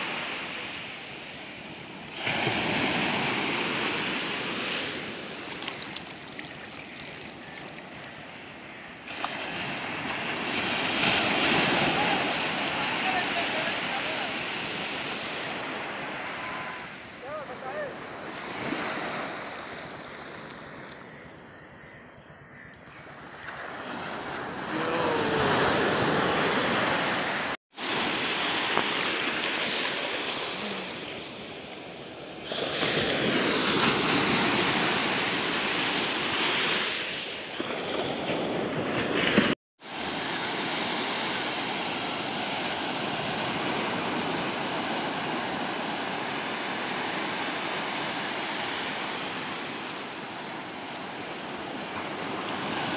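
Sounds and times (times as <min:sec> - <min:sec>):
small waves breaking on shore: 0:00.0 - 0:21.5, 0:23.0 - 0:52.9.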